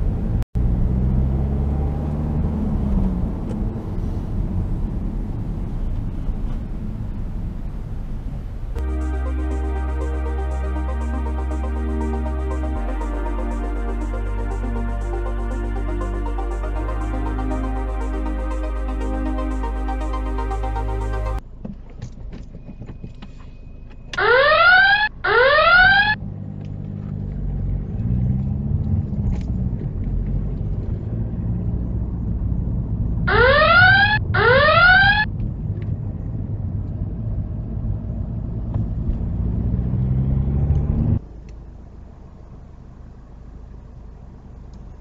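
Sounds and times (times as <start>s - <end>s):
car engine accelerating: 0.0s - 21.4s, 26.2s - 33.4s, 36.1s - 45.0s
rising two-tone beeps: 24.2s - 26.2s, 33.3s - 35.2s.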